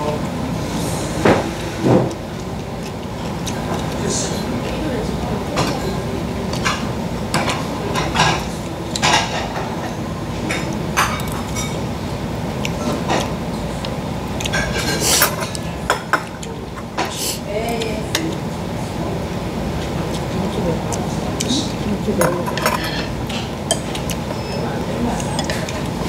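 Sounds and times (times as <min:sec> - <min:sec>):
cutlery clinking on ceramic bowls: 0:10.5 - 0:11.8, 0:22.1 - 0:24.6.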